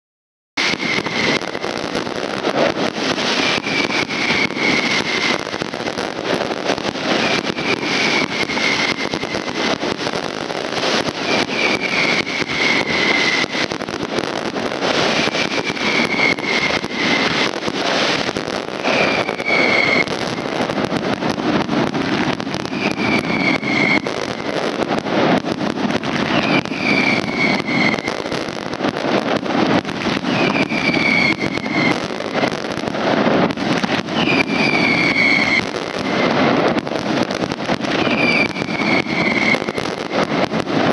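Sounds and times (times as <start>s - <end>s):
fireworks crackling and popping: 0.6s - 40.9s
high falling whistle: 15.2s - 17.4s, 18.8s - 20.2s, 22.7s - 24.1s, 26.3s - 28.3s, 30.3s - 32.0s, 34.1s - 36.2s.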